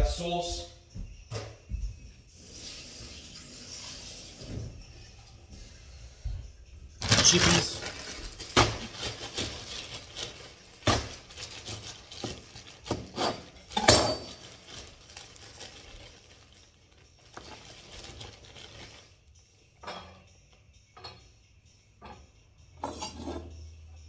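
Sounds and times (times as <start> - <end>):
kitchen items knocking and clattering: 7.0 - 16.6, 17.2 - 19.0.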